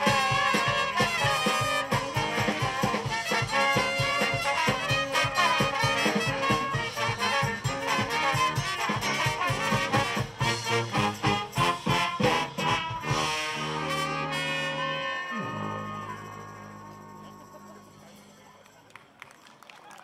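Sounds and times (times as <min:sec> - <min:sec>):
drum kit beat: 0:00.0 - 0:14.4
brass band playing: 0:00.0 - 0:18.3.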